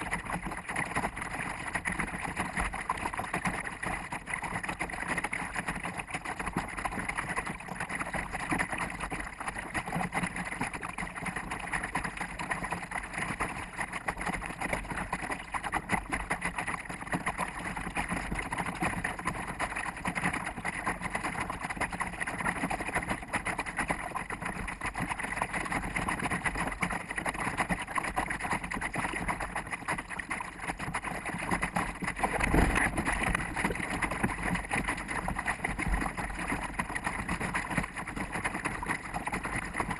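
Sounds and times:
wind and water rushing past boat: 0.0s - 39.9s.

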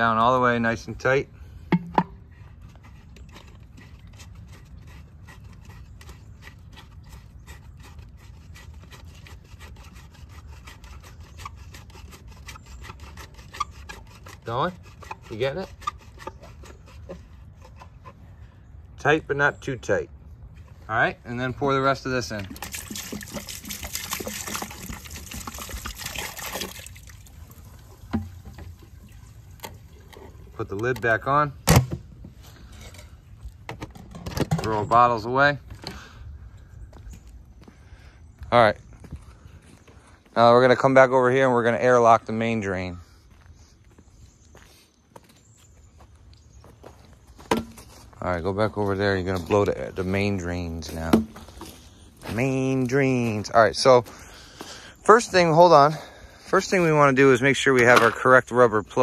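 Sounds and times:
liquid pouring and splashing: 22.4s - 30.2s.

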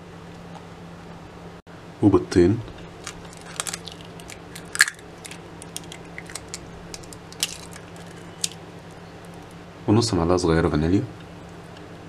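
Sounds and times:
eggshells cracking: 2.9s - 9.6s.

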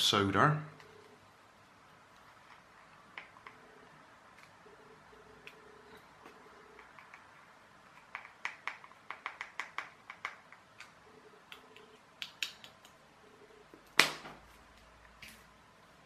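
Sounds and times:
teaspoon tapping plastic caps: 8.0s - 10.6s.

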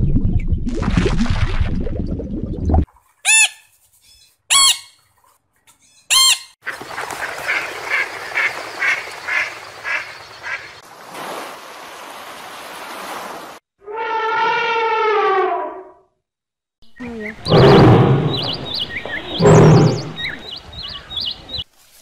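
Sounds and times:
waterfowl calling: 3.2s - 5.1s, 5.8s - 10.8s, 16.9s - 21.6s
ducks quacking: 6.1s - 10.8s, 17.1s - 21.6s
surf washing in: 7.6s - 13.6s.

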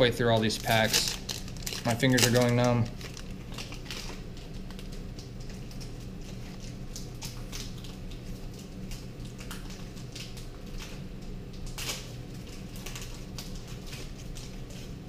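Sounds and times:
foil wrappers crinkling: 0.0s - 15.0s
steady low hum: 0.0s - 15.0s
trading cards rustling: 0.3s - 5.0s.

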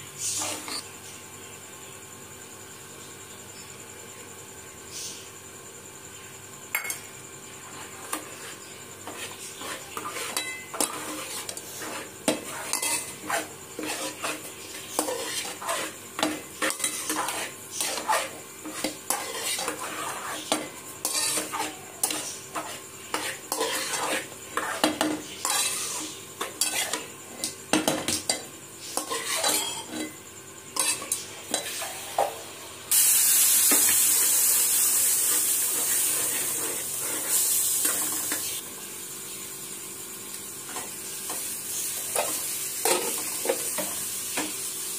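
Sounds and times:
spoon scraping a metal pan: 0.2s - 0.8s, 7.7s - 32.2s, 35.3s - 38.6s
loud sizzling hiss: 28.2s - 44.9s.

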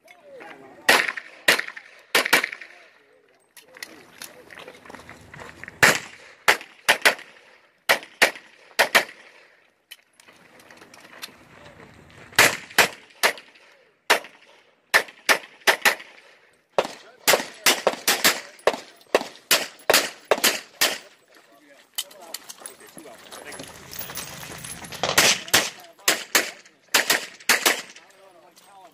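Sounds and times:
handgun shots: 16.8s - 21.1s, 25.0s - 28.0s.

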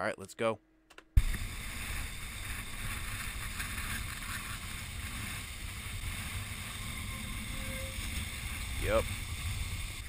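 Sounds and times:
rough surf hiss: 1.2s - 10.0s.

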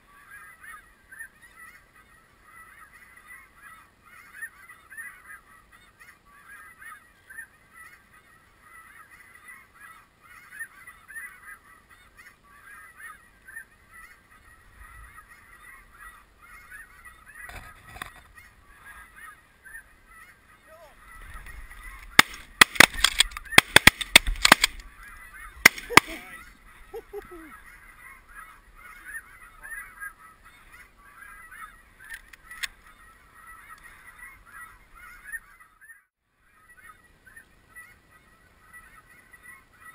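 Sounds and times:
geese honking: 0.0s - 39.9s
shotgun shots: 22.1s - 24.8s, 25.6s - 26.4s.

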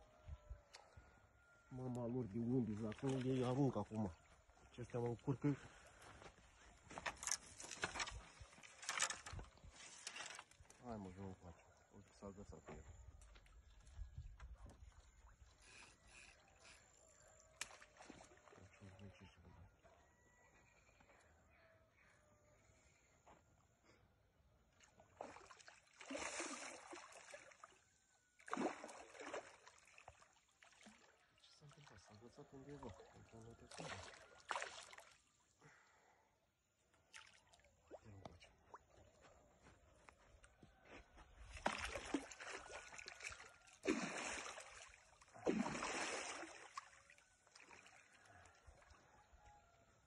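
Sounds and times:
water splashing and sloshing: 2.3s - 12.2s, 13.0s - 19.2s, 24.7s - 35.4s, 36.8s - 39.2s, 41.3s - 49.3s
fish splashing in water: 24.8s - 27.8s, 28.4s - 31.8s, 33.7s - 35.3s, 41.5s - 48.6s.

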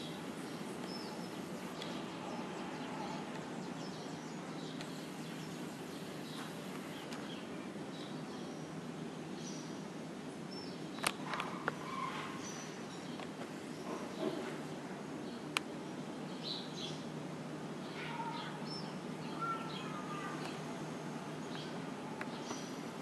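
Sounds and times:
outdoor background noise: 0.0s - 23.0s
bird chirps: 18.2s - 20.6s.

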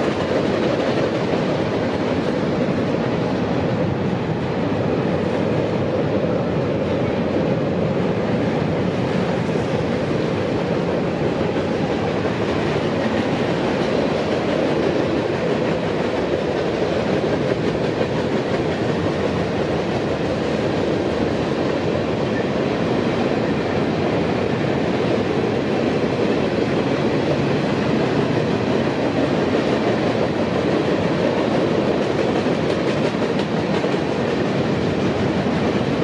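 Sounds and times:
train wheels on rails: 0.0s - 36.0s.

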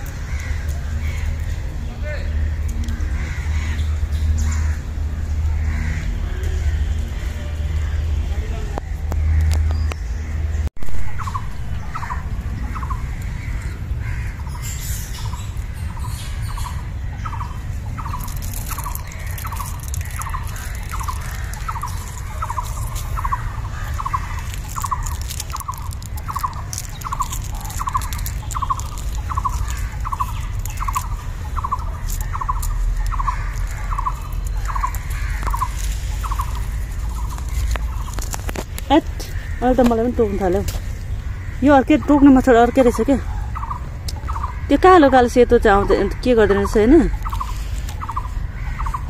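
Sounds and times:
dry leaves and twigs crackling: 0.0s - 49.0s
steady low rumble: 0.0s - 49.0s.

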